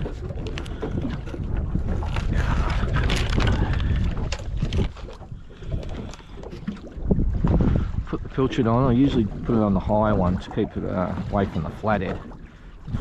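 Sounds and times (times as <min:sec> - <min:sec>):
fishing tackle rustling and clicking: 0:00.0 - 0:07.0
wind buffeting microphone: 0:00.0 - 0:13.0.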